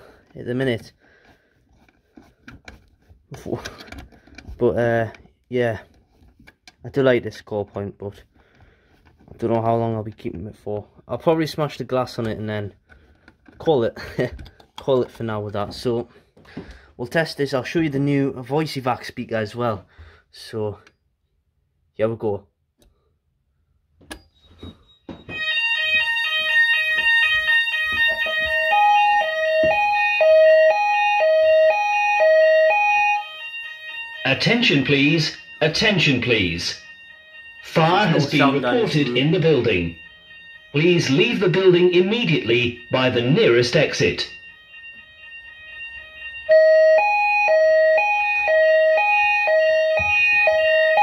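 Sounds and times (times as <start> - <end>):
click: 22.8 - 23.0
alarm speaker alert tone: 24.5 - 51.0.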